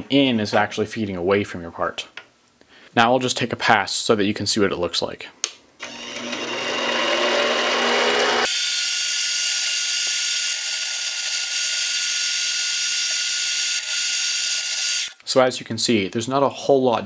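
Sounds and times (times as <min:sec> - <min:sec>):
lathe cutting metal: 0:05.8 - 0:12.0.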